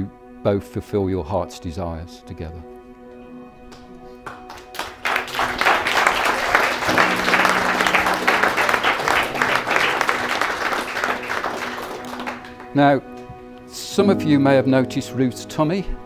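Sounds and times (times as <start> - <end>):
people applauding: 3.7 - 12.9.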